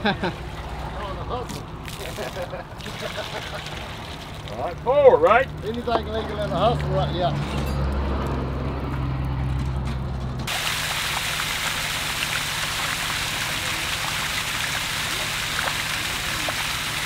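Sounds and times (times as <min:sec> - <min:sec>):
water gushing from a pipe: 0:00.4 - 0:06.9, 0:10.5 - 0:17.0
water splashing: 0:00.4 - 0:07.1, 0:10.5 - 0:17.0.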